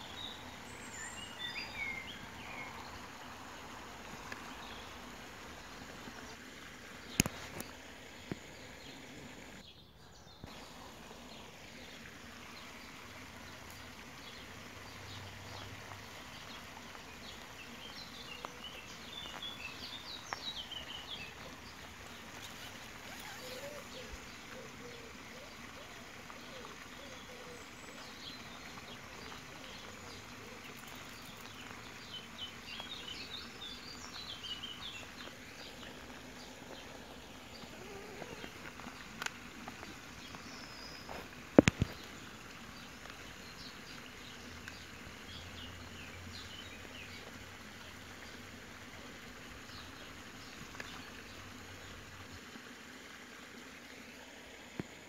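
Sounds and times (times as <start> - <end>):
songbirds singing: 0.0 - 52.7
background hiss: 0.0 - 55.0
lower warbling bird call: 22.5 - 27.6.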